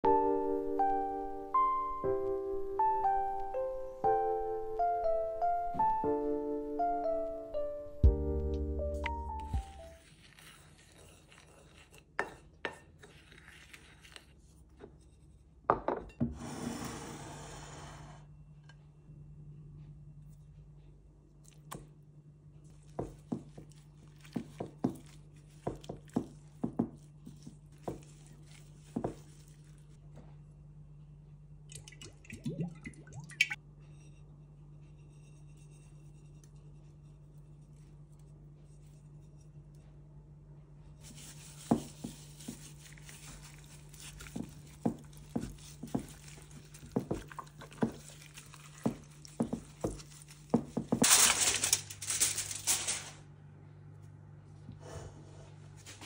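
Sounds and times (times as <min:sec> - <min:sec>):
hand rubbing paste on skin: 0:41.0 - 0:50.4
spice rub sprinkling: 0:41.0 - 0:52.9.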